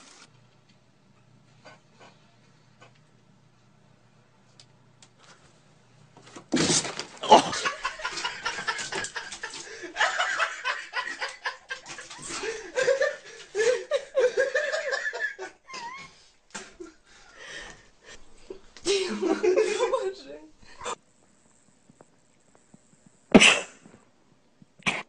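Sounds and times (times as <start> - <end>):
people laughing hard: 7.2 - 17.0, 18.9 - 20.1.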